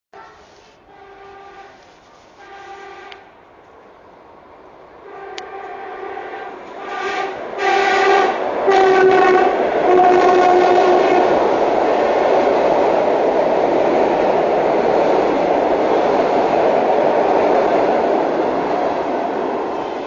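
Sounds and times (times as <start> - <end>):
train cars running past: 0.2 - 20.0
train horn blasts: 0.8 - 3.3, 5.0 - 11.3.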